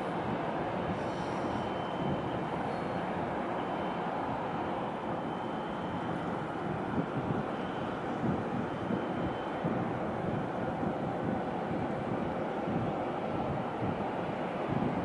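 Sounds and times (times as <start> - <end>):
faint high whine: 1.0 - 9.6.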